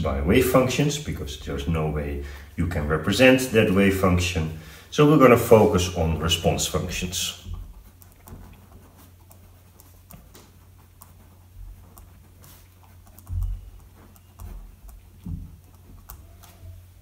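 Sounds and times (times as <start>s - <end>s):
pen scratching on paper: 5.6s - 16.8s.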